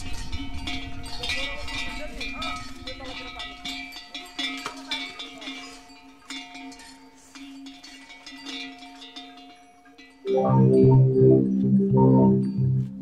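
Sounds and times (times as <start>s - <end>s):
small metal bells jingling: 0.0s - 10.4s
steady ringing tones: 9.0s - 13.0s
loud low rhythmic music: 10.3s - 13.0s.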